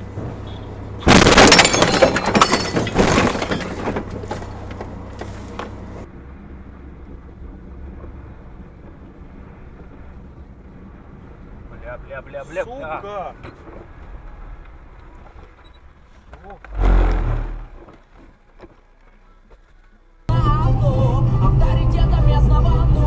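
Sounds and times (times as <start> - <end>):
car driving hum: 0.0 - 23.0
car collision impact: 1.0 - 5.8
shattering glass and debris: 1.1 - 4.0.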